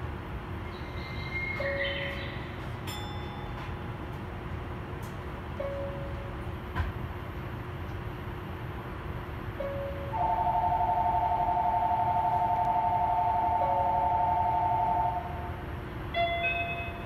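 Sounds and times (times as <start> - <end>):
steady low hum: 0.0 - 17.0
warbling two-tone signal: 10.2 - 15.5.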